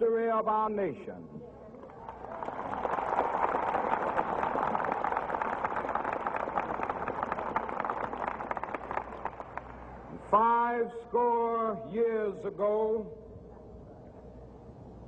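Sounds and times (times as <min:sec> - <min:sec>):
large crowd applauding: 0:01.8 - 0:09.8.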